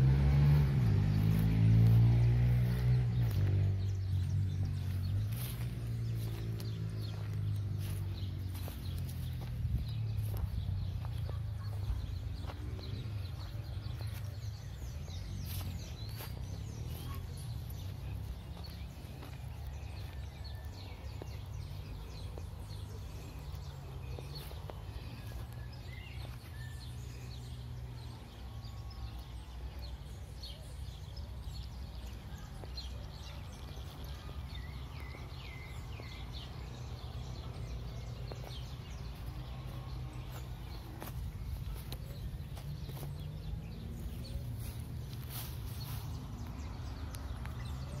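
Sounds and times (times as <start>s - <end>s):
steady low rumble: 0.0s - 24.0s
small birds chirping: 0.0s - 48.0s.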